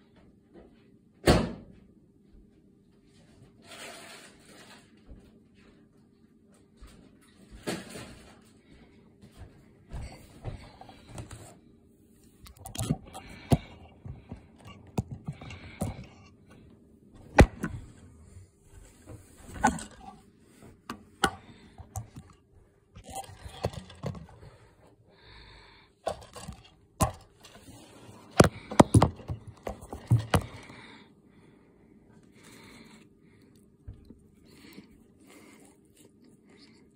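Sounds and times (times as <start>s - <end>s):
handling knocks and scrapes: 17.2s - 22.4s, 26.1s - 30.8s.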